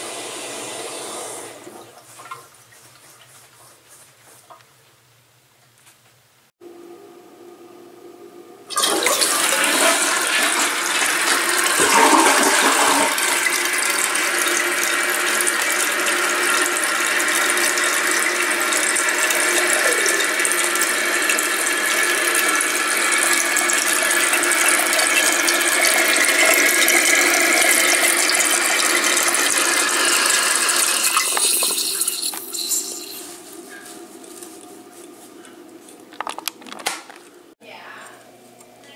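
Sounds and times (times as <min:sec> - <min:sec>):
toilet flushing: 0:00.0 - 0:02.6, 0:08.6 - 0:33.4
tank refilling with loud hiss: 0:28.0 - 0:33.2.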